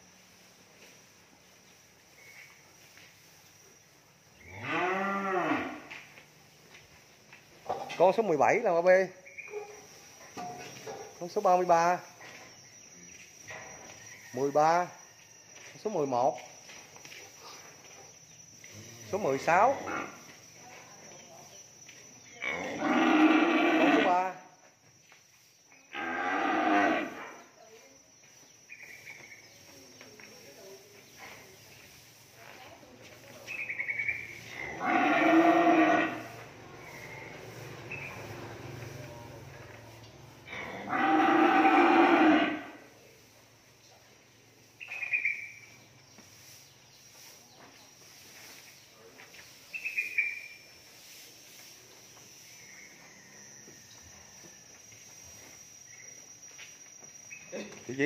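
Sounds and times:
high-pitched insect whine: 0:00.0 - 0:58.0.

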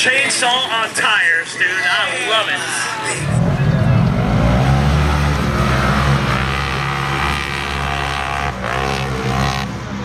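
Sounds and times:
utv engines revving: 0:03.0 - 0:10.0.

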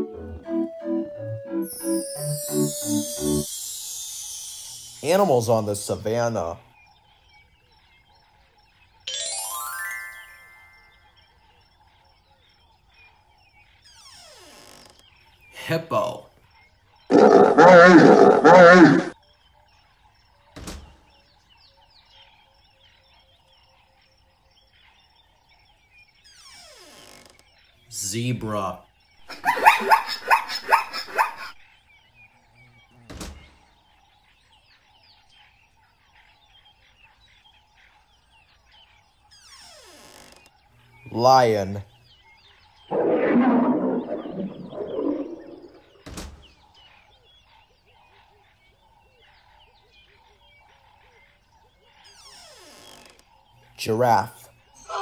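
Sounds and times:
faint chirping: 0:01.6 - 0:55.0
sharp burst of noise: 0:02.5 - 0:05.4
lion roaring: 0:17.1 - 0:19.1
thump: 0:20.6 - 0:21.0, 0:33.1 - 0:33.6, 0:46.0 - 0:46.6
falling sweep: 0:42.9 - 0:46.0.

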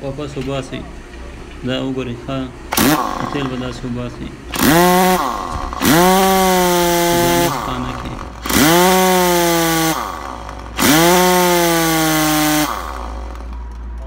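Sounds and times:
pneumatic impact wrench running: 0:02.7 - 0:13.9.

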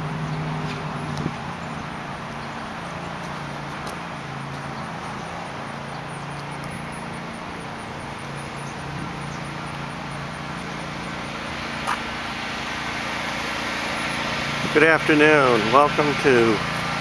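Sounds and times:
distant motor humming: 0:00.0 - 0:17.0
outdoor background noise: 0:00.0 - 0:17.0
sharp click: 0:11.8 - 0:12.1.

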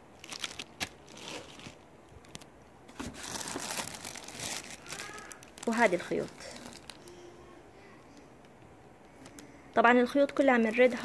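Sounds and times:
plastic bags crinkling: 0:00.0 - 0:07.2, 0:10.3 - 0:11.0.

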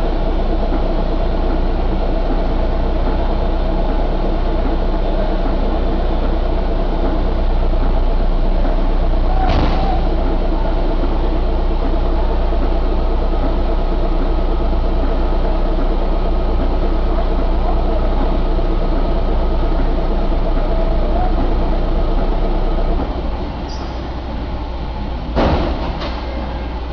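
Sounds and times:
diesel engine running: 0:00.0 - 0:26.9.

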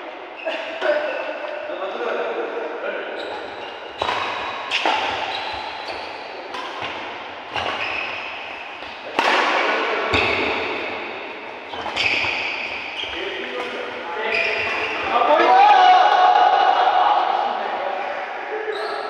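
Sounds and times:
rackets hitting shuttlecock: 0:03.3 - 0:15.1.

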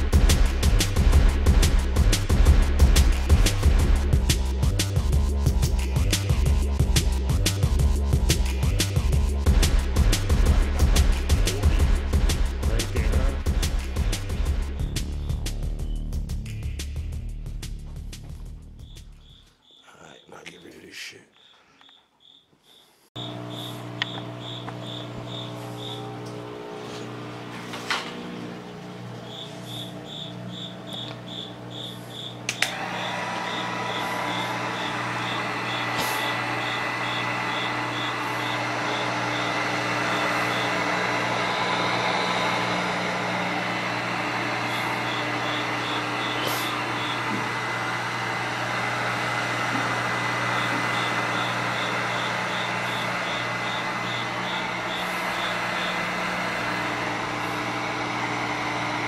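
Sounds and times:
heat gun blowing air: 0:31.6 - 0:59.0
heat gun switch click: 0:32.4 - 0:32.8.

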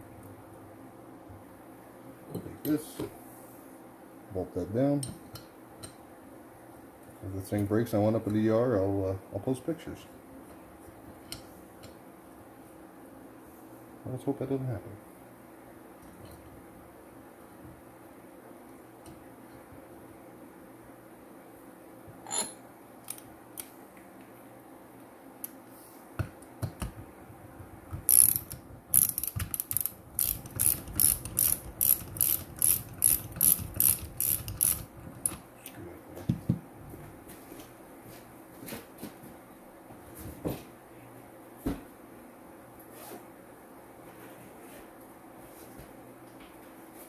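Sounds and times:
ratchet wrench clicking: 0:28.1 - 0:35.4.

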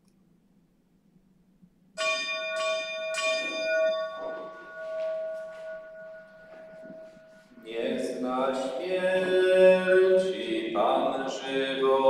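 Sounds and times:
bell ringing: 0:02.0 - 0:09.9.

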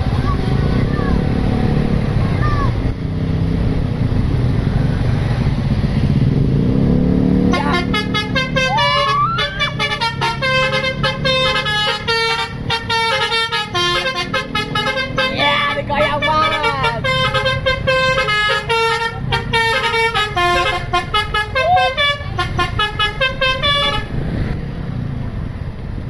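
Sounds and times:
bus engine running: 0:00.0 - 0:26.0
musical horn playing a tune: 0:07.5 - 0:24.2.

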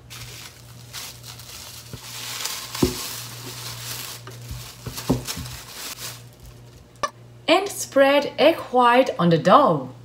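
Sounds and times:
cling wrap crinkling: 0:00.0 - 0:06.9.

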